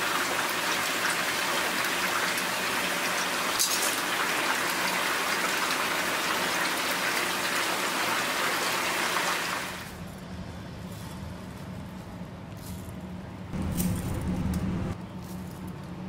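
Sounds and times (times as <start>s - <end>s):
broth boiling in a pot: 0.0s - 10.0s
low hum: 13.6s - 15.0s.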